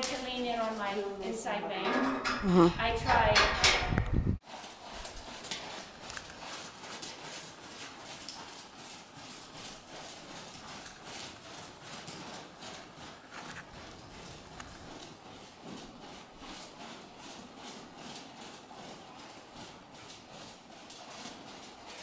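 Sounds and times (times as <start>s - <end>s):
horse hoofbeats on sand: 4.4s - 22.0s.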